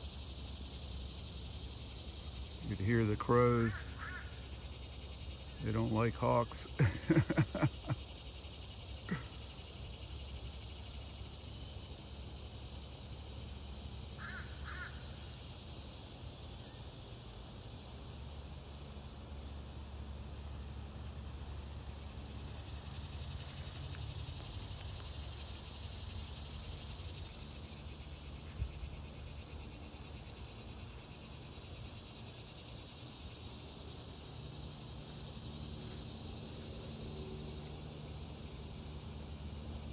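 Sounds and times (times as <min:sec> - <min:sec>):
high-pitched insect hum: 0:00.0 - 0:39.9
crows cawing: 0:03.7 - 0:04.4, 0:14.2 - 0:15.1.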